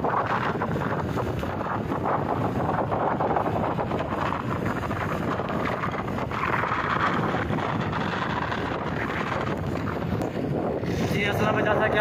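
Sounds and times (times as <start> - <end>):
road and engine noise: 0.0 - 12.0
wind buffeting microphone: 0.0 - 12.0.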